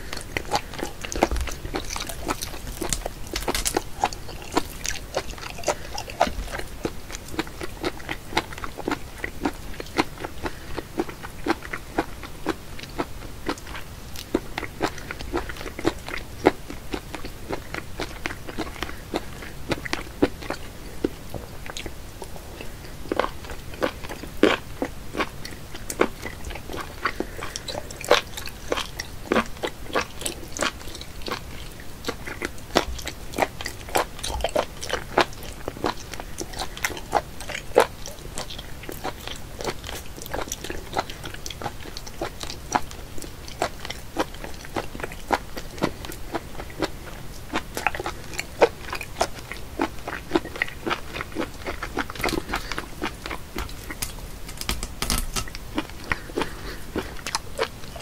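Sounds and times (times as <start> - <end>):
chewing with mouth clicks and smacks: 0.0 - 58.0.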